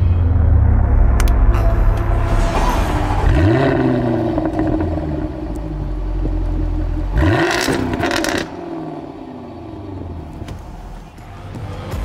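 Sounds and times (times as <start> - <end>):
car engine idling with rev blip: 3.3 - 11.2.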